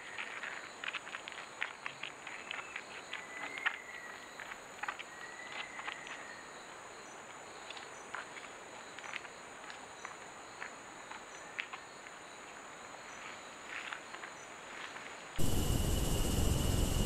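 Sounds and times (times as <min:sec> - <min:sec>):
faint ticks and chirps: 0:00.0 - 0:17.0
insects trilling: 0:15.4 - 0:17.0
loud hiss with high whine: 0:15.4 - 0:17.0.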